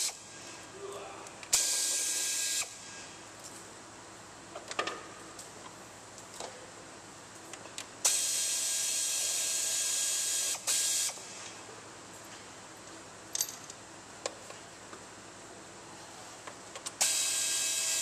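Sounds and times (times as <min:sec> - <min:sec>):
power ratchet running: 0:17.0 - 0:18.0.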